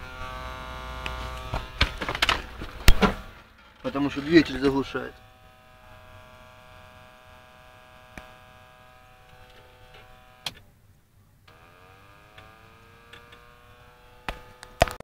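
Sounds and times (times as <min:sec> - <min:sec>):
fans whining: 0:00.0 - 0:10.6.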